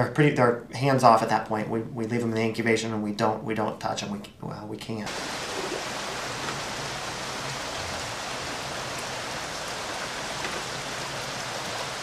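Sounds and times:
water running through incubator: 5.1 - 12.0.

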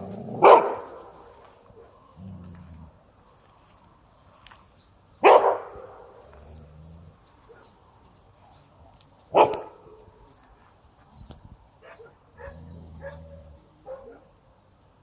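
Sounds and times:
dog barking: 0.4 - 1.1, 5.2 - 6.2, 9.3 - 10.0, 11.8 - 14.3.

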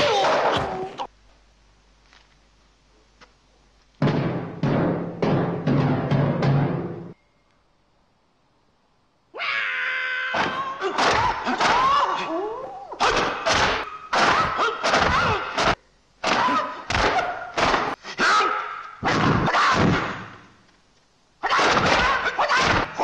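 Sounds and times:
man's high-pitched fight cry: 9.4 - 15.7, 18.1 - 19.9, 21.4 - 23.0.

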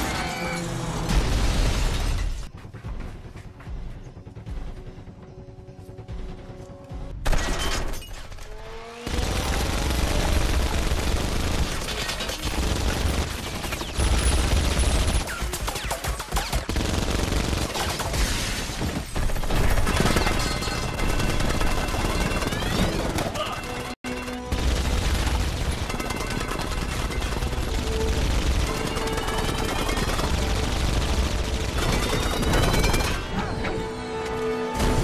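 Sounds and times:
rapid minigun fire: 9.0 - 23.5, 24.2 - 33.3.

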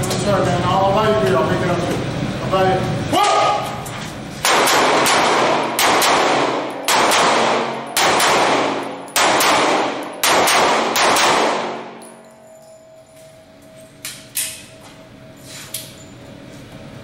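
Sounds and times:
pistol shots echoing: 4.4 - 12.2.

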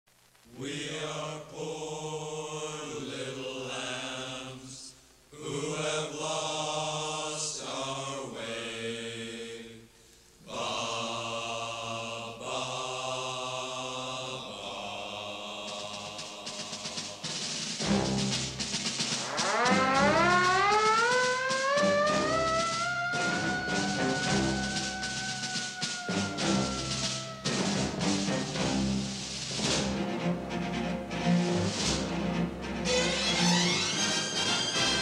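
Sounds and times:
low chanting voices: 0.5 - 18.6, 21.8 - 29.3.

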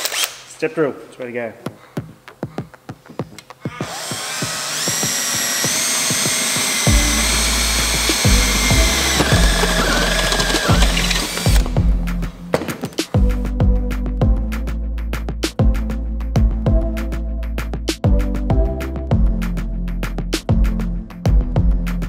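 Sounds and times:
cordless drill boring through metal: 0.0 - 0.3, 3.7 - 11.7.

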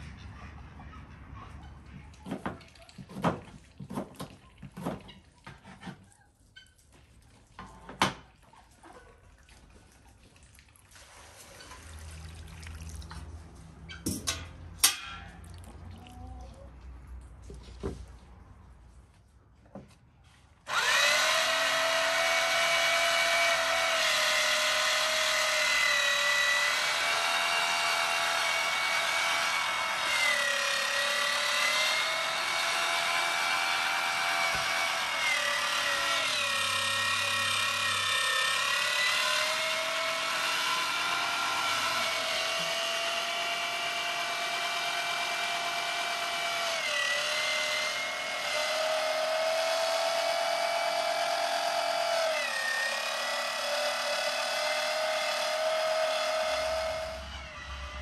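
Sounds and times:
electric meat grinder whining: 20.7 - 58.0.

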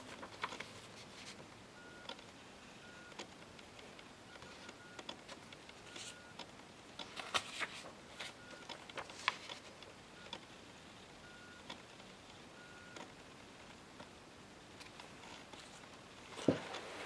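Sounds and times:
paper cards rustling: 0.0 - 1.5, 5.3 - 6.2, 7.0 - 9.8, 14.8 - 17.0.

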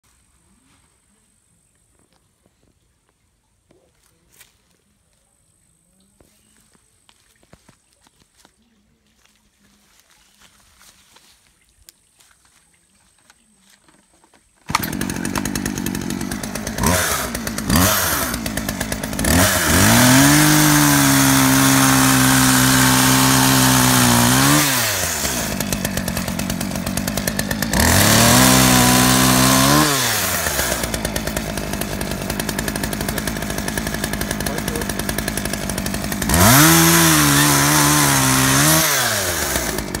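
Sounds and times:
chainsaw idling and revving: 14.6 - 40.0.

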